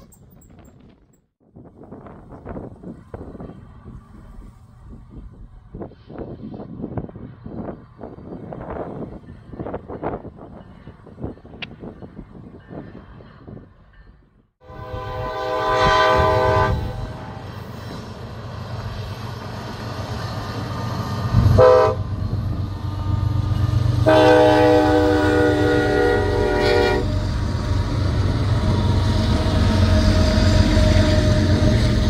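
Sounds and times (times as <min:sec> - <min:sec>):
locomotive air horn blasts: 0:14.6 - 0:17.5, 0:21.4 - 0:22.1, 0:24.0 - 0:27.2.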